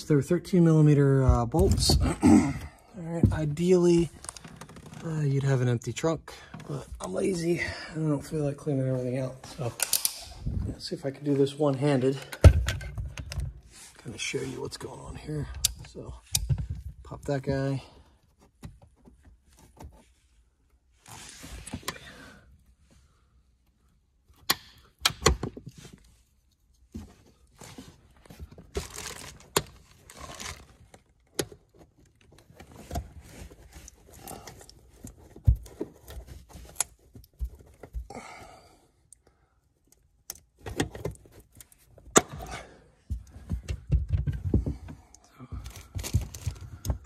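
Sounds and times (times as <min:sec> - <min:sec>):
heavy thumps: 0:01.2 - 0:03.6
plastic clips popping out: 0:09.8 - 0:10.3
handling clicks and thunks: 0:11.4 - 0:13.6, 0:28.2 - 0:38.1, 0:39.9 - 0:47.0.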